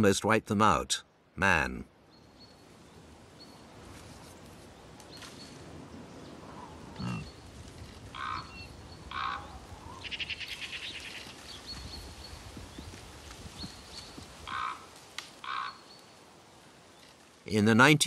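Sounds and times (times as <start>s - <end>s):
thin high bird calls: 6.2s - 12.4s, 13.6s - 16.2s
low animal sound: 6.6s - 7.4s.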